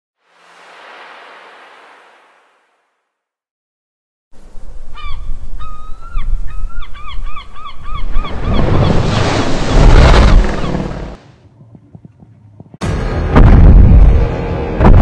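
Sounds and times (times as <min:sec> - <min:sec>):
sea surf: 0:08.1 - 0:11.1
deep rumble with rushing water: 0:08.3 - 0:11.2.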